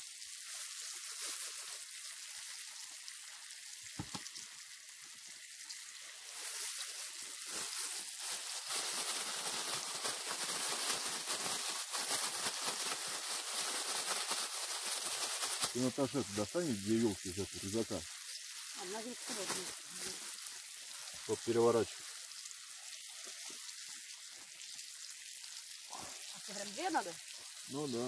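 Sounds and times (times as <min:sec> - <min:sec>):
fish sizzling in a frying pan: 0:00.0 - 0:28.0.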